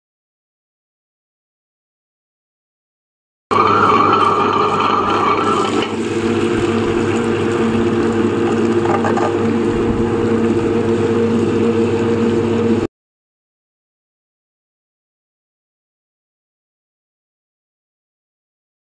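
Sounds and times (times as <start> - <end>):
grinder motor humming: 3.5 - 12.9.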